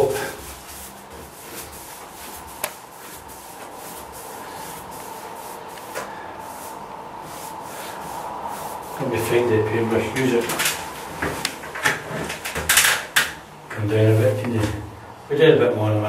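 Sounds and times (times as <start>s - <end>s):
paintbrush strokes on wood: 0.0s - 10.1s.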